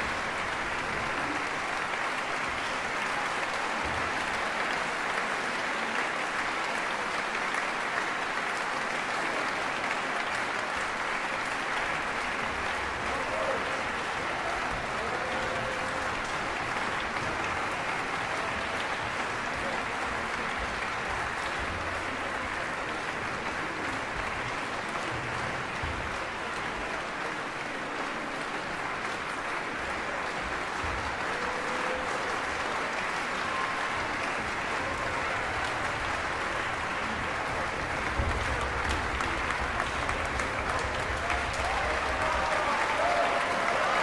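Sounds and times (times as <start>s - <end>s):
audience applauding: 0.0s - 44.0s.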